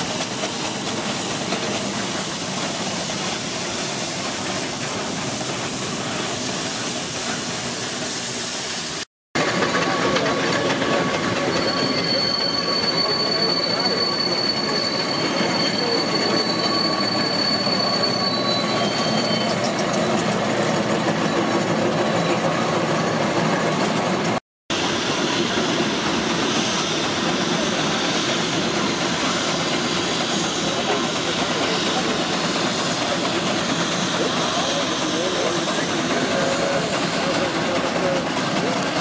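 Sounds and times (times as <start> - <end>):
steam engine clatter and rumble: 0.0 - 39.0
thin high squeal: 10.9 - 20.3.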